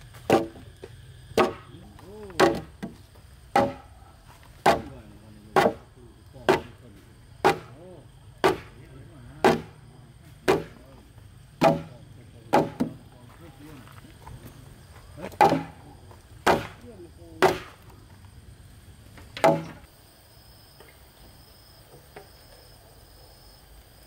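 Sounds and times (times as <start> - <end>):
hand tool chopping wood: 0.1 - 0.7, 1.3 - 3.9, 4.6 - 6.8, 7.4 - 7.8, 8.4 - 8.8, 9.4 - 9.8, 10.4 - 10.9, 11.6 - 13.0, 15.2 - 16.8, 17.4 - 17.9, 19.4 - 19.9.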